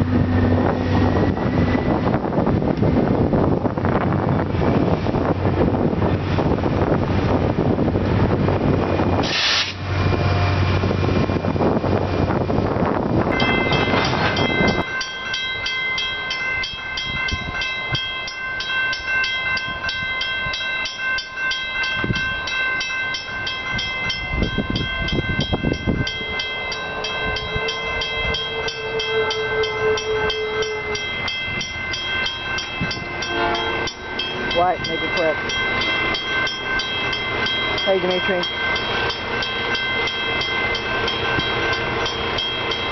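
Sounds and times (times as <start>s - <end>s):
wind on microphone: 0.0s - 15.0s, 23.3s - 42.0s
diesel locomotive running: 0.0s - 42.9s
crossing bell ringing: 13.2s - 42.9s
distant train horn: 27.0s - 32.1s, 32.9s - 35.4s.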